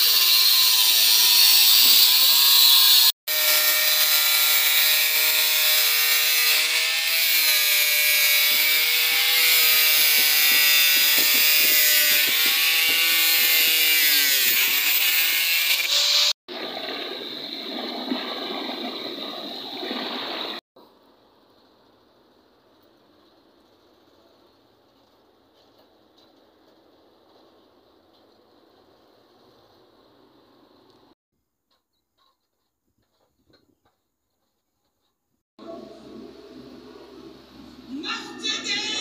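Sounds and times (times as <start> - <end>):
angle grinder cutting metal: 0.0 - 16.4
rough grinding noise: 0.0 - 16.4.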